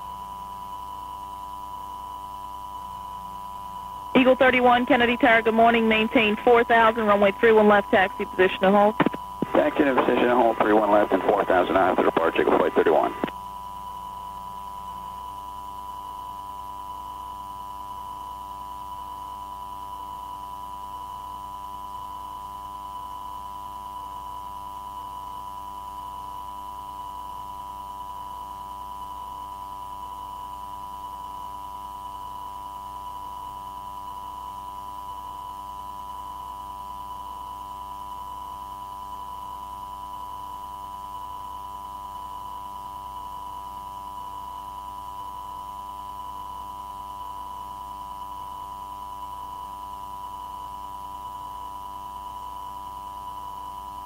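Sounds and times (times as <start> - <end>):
faint regular pulsing: 2.8 - 13.4
steady electronic radio tone: 4.2 - 13.4.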